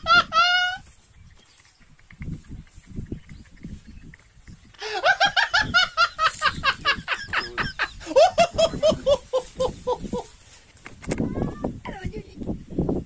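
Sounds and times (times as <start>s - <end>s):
person laughing: 0.0s - 0.8s, 4.7s - 10.4s.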